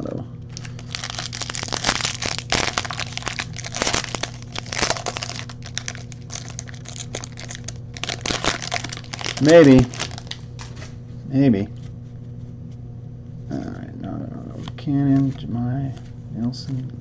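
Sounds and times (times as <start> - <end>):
foil wrapper crinkling: 0.5 - 10.9.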